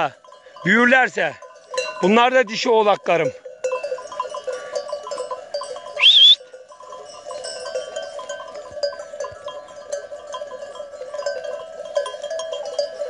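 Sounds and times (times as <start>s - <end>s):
animal bells clinking: 0.0s - 13.0s
high-pitched wavering cry: 6.0s - 6.4s.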